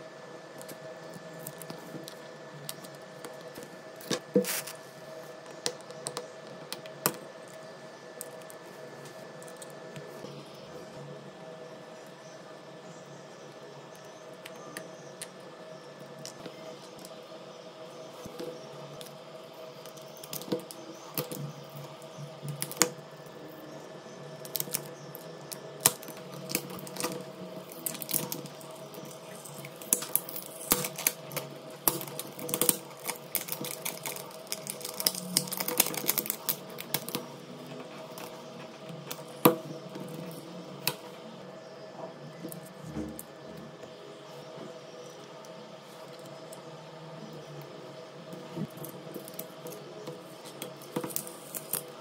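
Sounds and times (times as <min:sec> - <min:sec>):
plastic film crinkling: 0:25.6 - 0:39.5.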